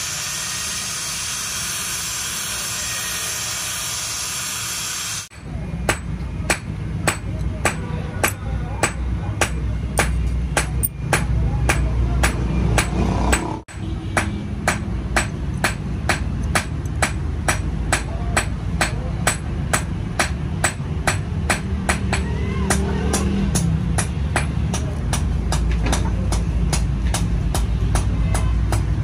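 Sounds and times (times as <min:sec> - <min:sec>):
hammer striking metal: 0:05.3 - 0:28.9.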